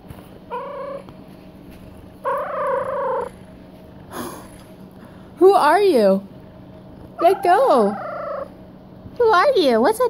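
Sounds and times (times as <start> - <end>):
cat growling: 2.2 - 4.8, 7.1 - 8.5.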